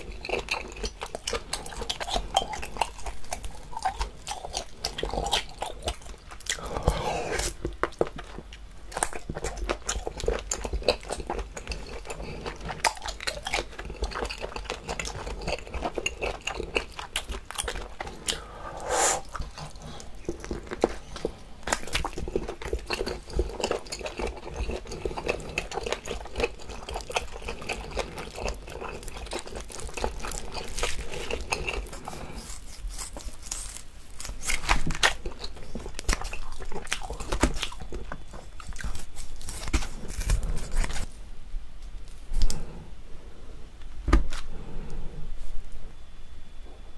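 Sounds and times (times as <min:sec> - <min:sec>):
chewing mouth clicks and smacks: 0:07.6 - 0:18.4.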